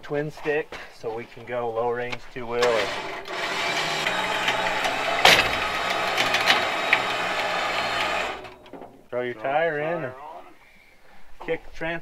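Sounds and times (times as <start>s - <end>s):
sharp metal clanks: 2.6s - 7.2s
winch running: 2.6s - 8.9s.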